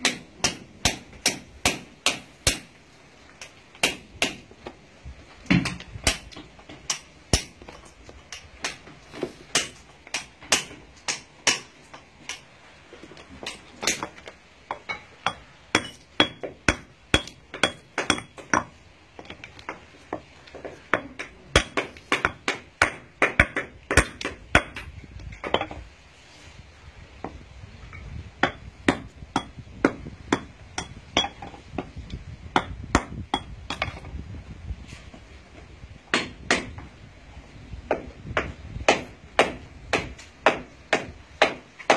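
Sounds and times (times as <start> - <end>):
hammer chipping stone: 0.0 - 2.7, 3.4 - 4.5, 5.5 - 12.4, 13.4 - 25.7, 28.4 - 31.9, 32.5 - 34.0, 36.1 - 36.8, 37.9 - 41.9.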